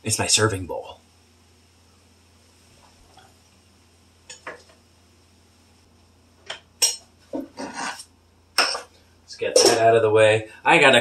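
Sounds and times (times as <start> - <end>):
dishes and utensils clinking: 6.5 - 8.0, 8.6 - 8.9, 9.5 - 9.9.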